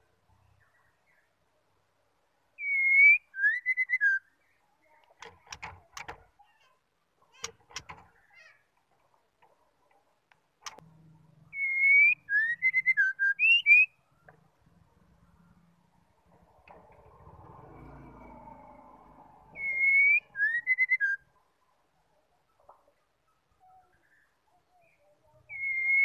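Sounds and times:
bird whistling phrase: 2.6 - 4.2, 11.6 - 13.9, 19.6 - 21.2, 25.5 - 26.0
sharp clicks: 5.0 - 6.3, 7.4 - 8.2, 10.3 - 10.9.

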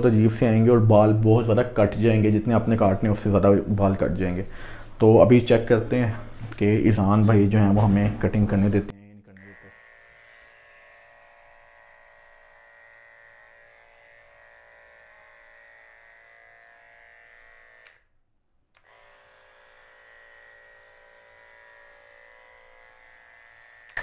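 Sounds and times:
electric pet clipper humming: 9.4 - 18.1, 18.8 - 24.0.

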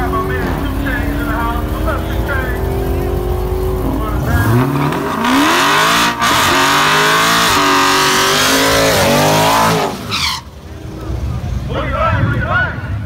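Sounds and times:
tyres spinning and squealing: 0.0 - 10.8
car engine revving hard: 2.4 - 10.4.

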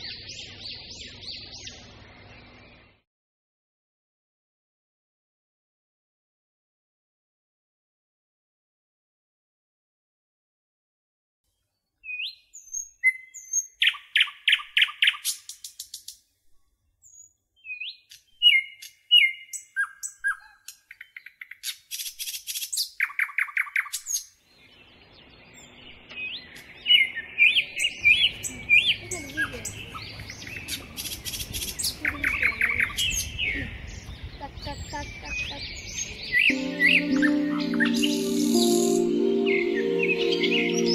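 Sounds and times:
songbirds chirping and trilling: 0.0 - 3.0, 11.5 - 40.9.

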